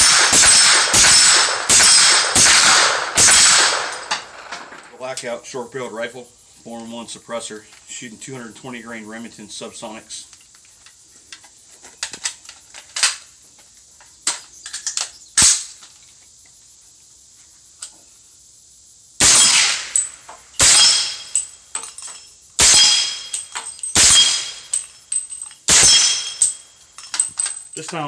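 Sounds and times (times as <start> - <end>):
suppressed gunshots: 0.0 - 5.0, 19.2 - 20.0.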